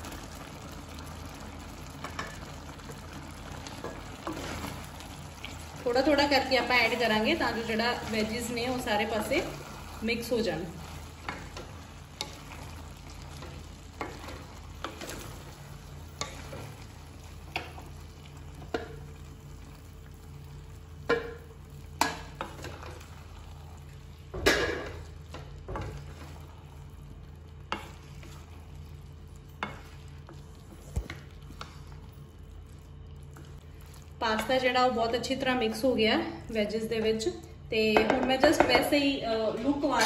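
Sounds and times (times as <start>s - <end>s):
faint sizzle: 0.0s - 40.0s.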